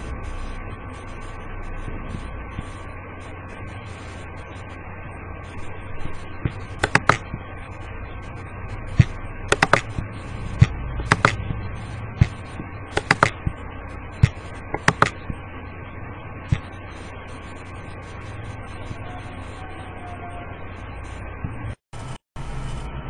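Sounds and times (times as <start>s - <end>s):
low electrical hum and hiss: 0.0s - 23.0s
computer handling clicks: 6.4s - 7.4s, 9.0s - 11.6s, 12.2s - 13.6s, 14.2s - 15.4s.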